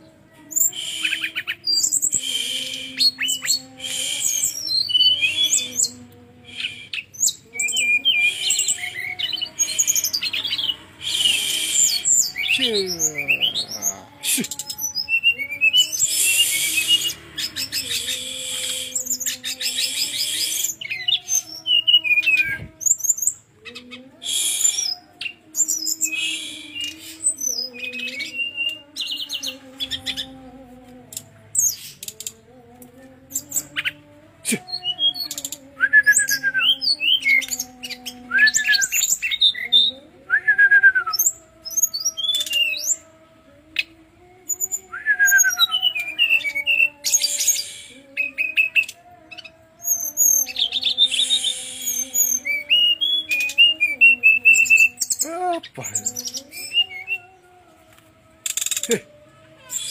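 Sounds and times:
bird singing trills and whistles: 0:00.0 - 0:30.4, 0:34.6 - 0:43.1, 0:43.8 - 0:57.4, 0:58.4 - 0:59.0, 0:59.7 - 0:59.9.

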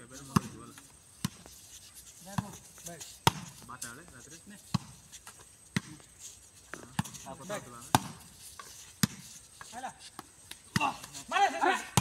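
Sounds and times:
hands slapping volleyball: 0:03.2 - 0:03.7, 0:06.7 - 0:12.0
players shouting: 0:10.7 - 0:12.0.

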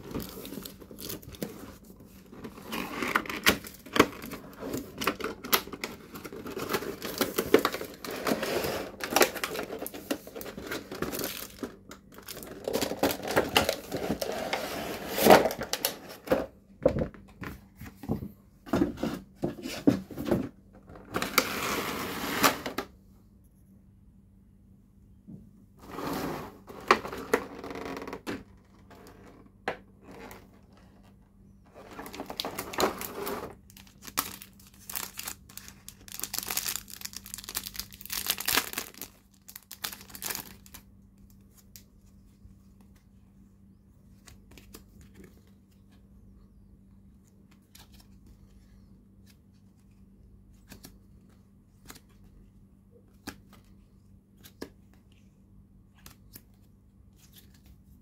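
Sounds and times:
plastic packaging crinkling and tearing: 0:00.0 - 0:01.7, 0:02.3 - 0:16.0, 0:31.8 - 0:41.8.

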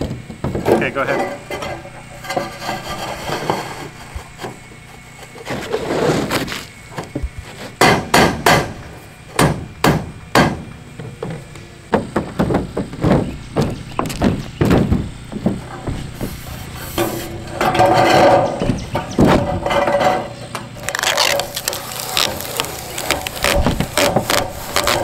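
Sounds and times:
hammer knocks on metal roof: 0:07.8 - 0:08.8, 0:09.4 - 0:10.6, 0:11.2 - 0:15.7.

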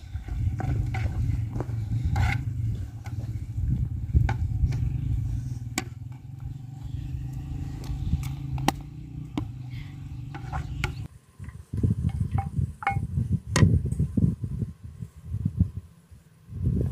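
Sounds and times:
steady low rumble: 0:00.0 - 0:11.1.

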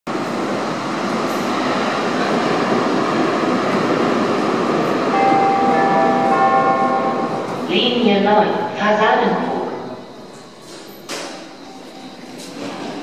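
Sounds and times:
train rumbling in tunnel: 0:00.1 - 0:13.0.

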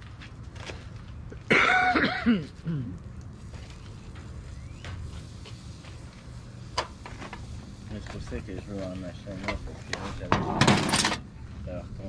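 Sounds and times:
person coughing: 0:01.5 - 0:03.0.

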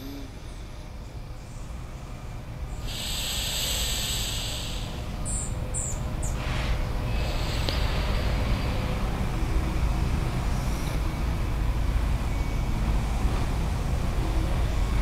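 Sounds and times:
low traffic rumble: 0:00.0 - 0:15.0
breath hissing through nostril: 0:02.8 - 0:05.2, 0:06.3 - 0:09.0.

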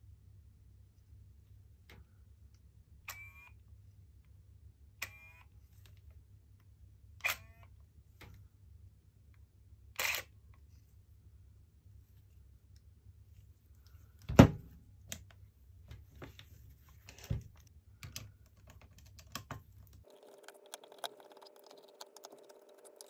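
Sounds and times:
camera aperture motor whirring: 0:03.1 - 0:03.5, 0:05.0 - 0:05.4, 0:07.2 - 0:07.6, 0:10.0 - 0:10.3.

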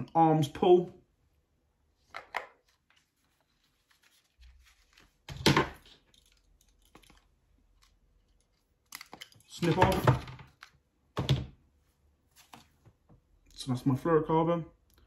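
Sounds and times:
fishing line clicks and rustles: 0:05.9 - 0:09.6.

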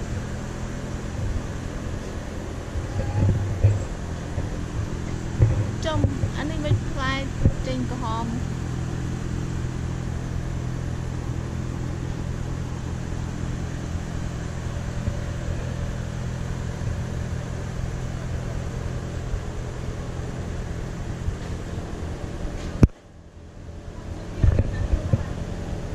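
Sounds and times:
road and wind noise: 0:00.0 - 0:25.9
vehicle engine droning: 0:00.0 - 0:25.9.

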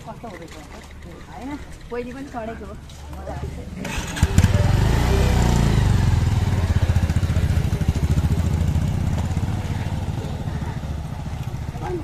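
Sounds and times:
motorcycle engine pulling away: 0:03.8 - 0:12.0.

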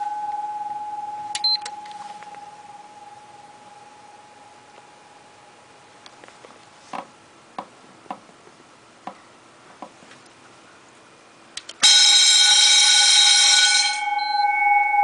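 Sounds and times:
electric bell ringing: 0:00.0 - 0:04.7, 0:11.8 - 0:15.0
timer button clicks: 0:01.3 - 0:02.0.

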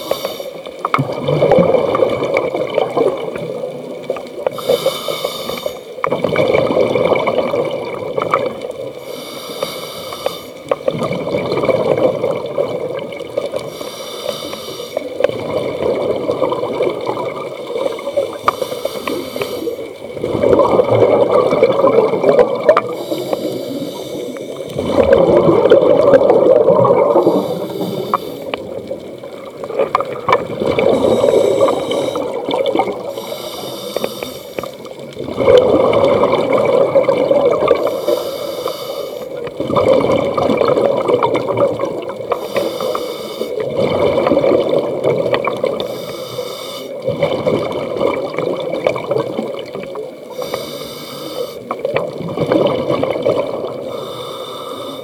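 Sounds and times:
regulator inhale hiss: 0:00.0 - 0:00.7, 0:04.5 - 0:06.0, 0:09.0 - 0:10.8, 0:13.6 - 0:15.2, 0:17.8 - 0:20.0, 0:22.8 - 0:24.7, 0:27.1 - 0:28.7, 0:30.9 - 0:32.4, 0:33.0 - 0:34.9, 0:37.8 - 0:39.4, 0:42.3 - 0:43.6, 0:45.8 - 0:47.1, 0:50.3 - 0:51.8, 0:53.8 - 0:55.0
gurgling exhaust bubbles: 0:01.0 - 0:03.9, 0:06.1 - 0:08.6, 0:20.1 - 0:23.0, 0:24.7 - 0:33.1, 0:34.9 - 0:37.9, 0:39.4 - 0:42.3, 0:43.6 - 0:45.8, 0:47.0 - 0:50.2, 0:51.7 - 0:53.9.

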